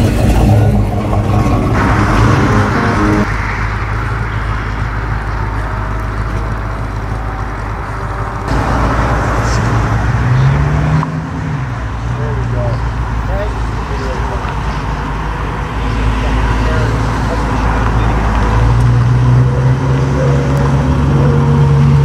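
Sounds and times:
car engine rumbling: 0:00.0 - 0:22.0
truck engine revving: 0:00.0 - 0:22.0.

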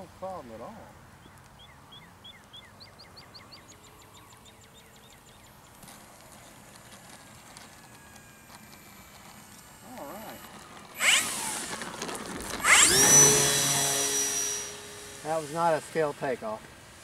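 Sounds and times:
model plane electric motor whine: 0:05.8 - 0:16.4.

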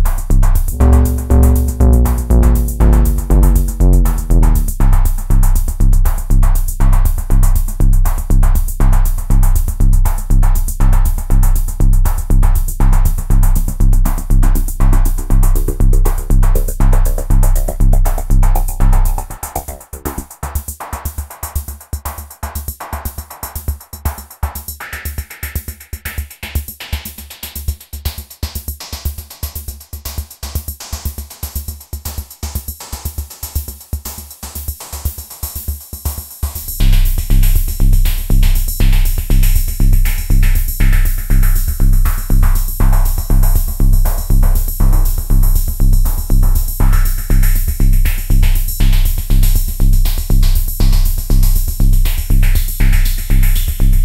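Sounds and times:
electronic drum machine beat: 0:00.7 - 0:05.0, 0:14.1 - 0:20.3
hi-hat pattern: 0:00.7 - 0:05.0, 0:14.1 - 0:20.3
bass drum: 0:00.7 - 0:05.5, 0:13.2 - 0:20.3.

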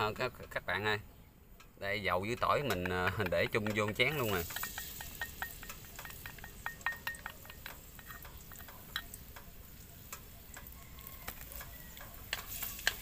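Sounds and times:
chopsticks tapping on metal bowl: 0:02.2 - 0:13.0
oil hissing: 0:02.9 - 0:13.0.

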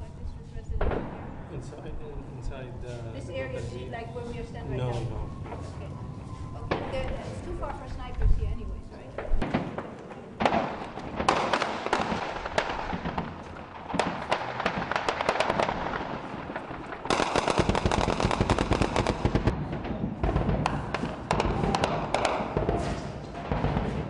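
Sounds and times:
rifle gunfire: 0:09.4 - 0:24.0.

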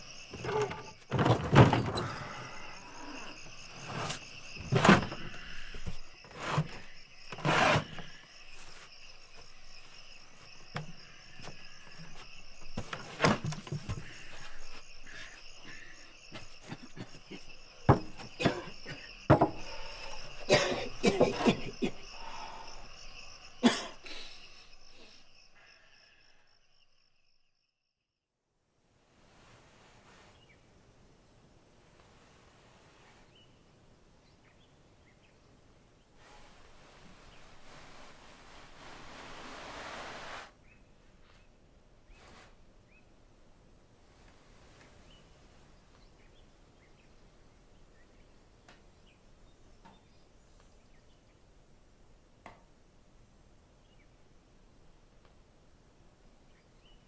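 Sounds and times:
crickets chirping: 0:00.0 - 0:28.3, 0:29.3 - 0:57.0
loud knocks and thuds: 0:19.3 - 0:19.6.

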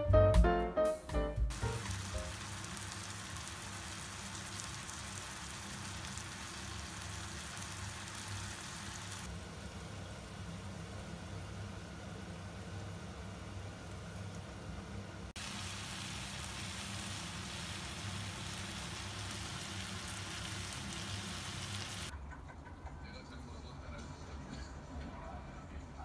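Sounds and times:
stir-fry sizzling in a pan: 0:01.5 - 0:22.1.

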